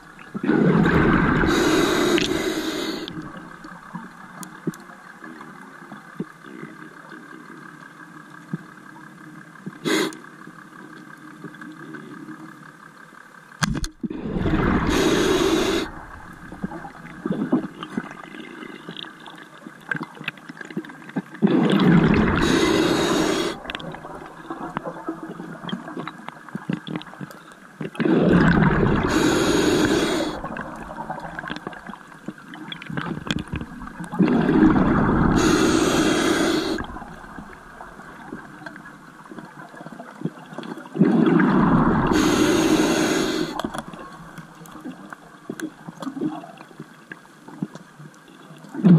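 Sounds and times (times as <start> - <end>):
exhaled bubbles underwater: 0.0 - 6.6, 14.0 - 46.7.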